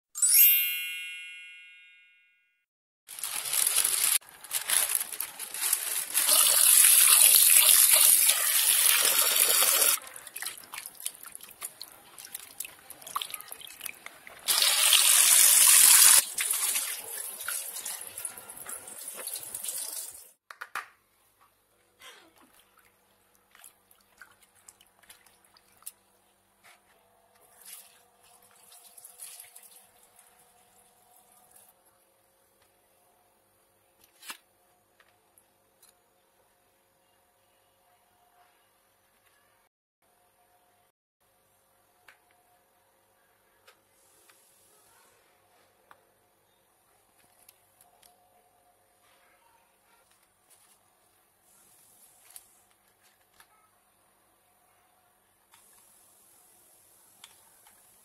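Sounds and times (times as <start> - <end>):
ringing chime: 0.2 - 2.5
water splashes and drips: 6.2 - 15.4, 22.4 - 26.0, 27.4 - 31.7.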